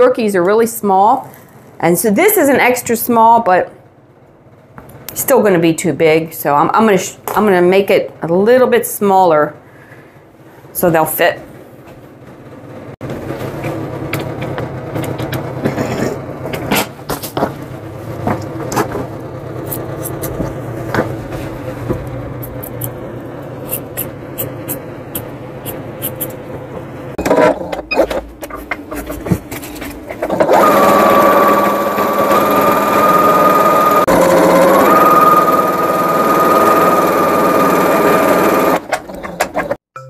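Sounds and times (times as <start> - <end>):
rotary cutter cutting fabric: 30.2 - 38.8
sewing machine whirring: 30.2 - 39.8.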